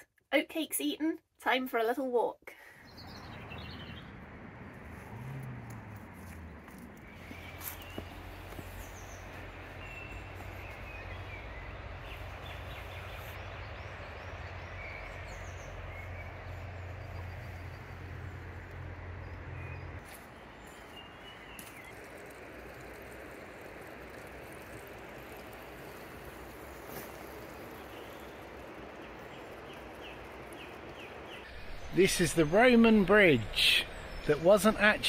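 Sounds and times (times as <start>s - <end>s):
small birds chirping: 2.6s - 35.0s
river running over rocks: 20.0s - 35.0s.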